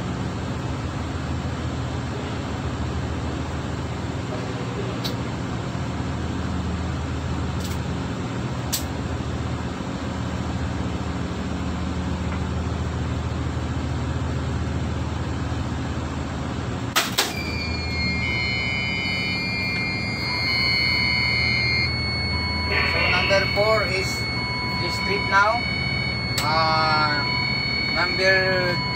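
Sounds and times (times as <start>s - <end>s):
low hum of generator machinery: 0.0s - 28.9s
high-pitched alarm buzzer: 17.3s - 28.9s.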